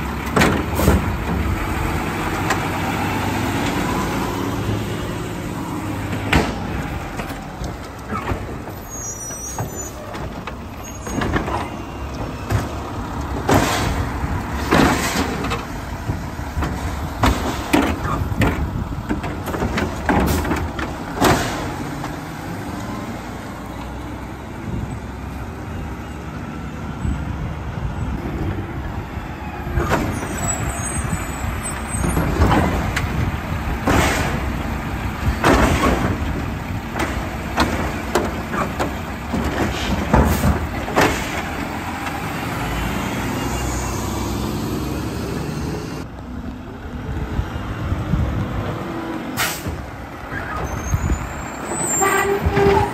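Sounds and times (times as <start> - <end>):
diesel truck engine running: 0.0 - 52.9
air brake hisses: 49.4 - 49.8.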